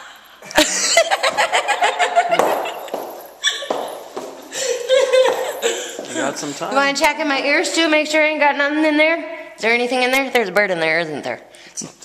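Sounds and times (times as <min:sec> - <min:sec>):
woman laughing: 0:00.5 - 0:06.9.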